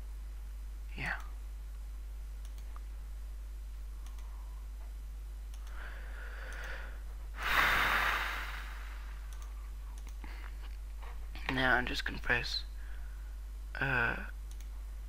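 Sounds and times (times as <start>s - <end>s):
low electrical hum: 0.0s - 15.0s
computer mouse clicks: 2.4s - 2.9s, 4.0s - 4.3s, 5.5s - 5.8s, 6.4s - 6.8s, 9.3s - 10.3s, 14.5s - 14.7s.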